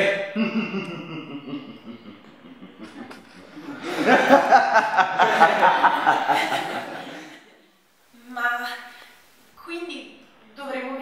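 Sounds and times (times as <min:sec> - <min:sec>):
person laughing: 0:00.4 - 0:07.3.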